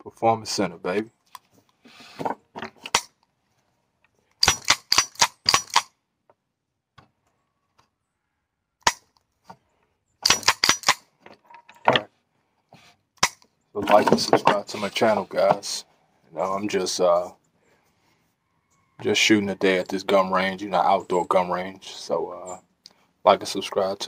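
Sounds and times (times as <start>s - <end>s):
pistol shots: 4.4s - 5.9s, 10.2s - 11.0s.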